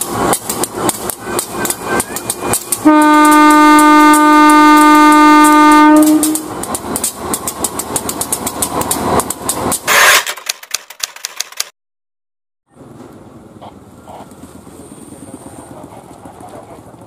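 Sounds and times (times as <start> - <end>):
train wheels clickety-clack: 0.0 - 11.7, 15.3 - 17.0
locomotive horn blast: 2.8 - 6.6.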